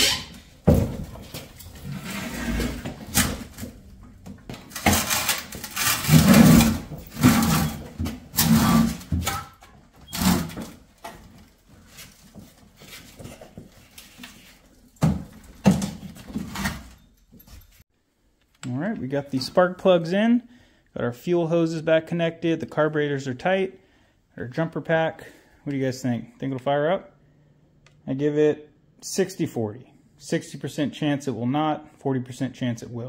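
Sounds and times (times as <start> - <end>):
knocks and rattles of mechanical work: 0.0 - 11.5.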